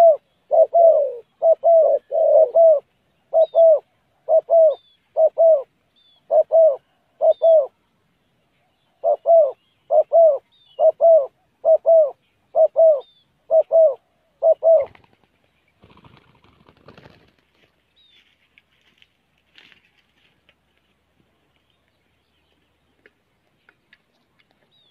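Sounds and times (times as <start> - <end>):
dove cooing: 0.0 - 7.8, 8.8 - 15.3.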